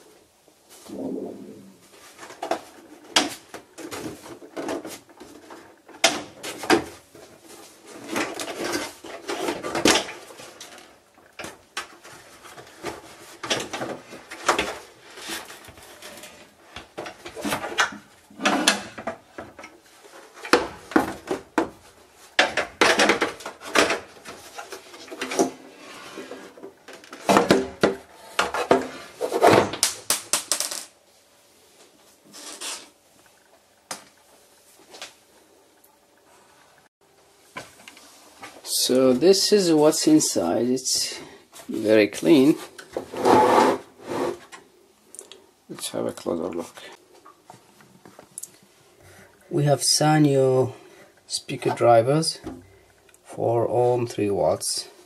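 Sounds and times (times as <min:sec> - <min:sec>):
plastic parts clattering and knocking: 0:02.1 - 0:31.0.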